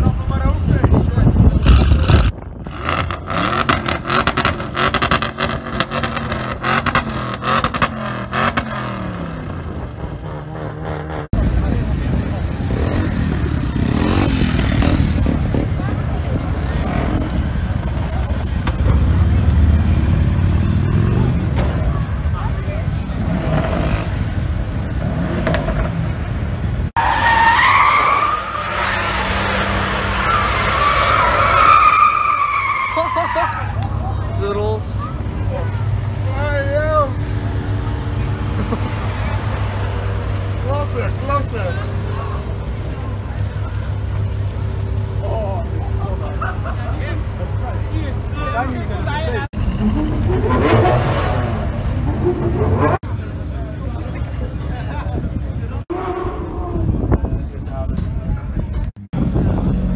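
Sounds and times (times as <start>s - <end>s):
car engine: 0.0s - 57.8s
low rumble of vehicles: 0.0s - 59.9s
tyres squealing: 27.0s - 33.8s.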